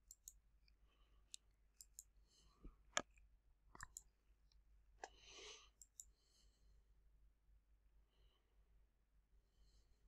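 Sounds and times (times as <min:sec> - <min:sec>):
computer mouse clicks: 0:00.0 - 0:00.4, 0:01.3 - 0:02.1, 0:03.0 - 0:04.1, 0:05.8 - 0:06.1
soft breath: 0:05.0 - 0:06.8.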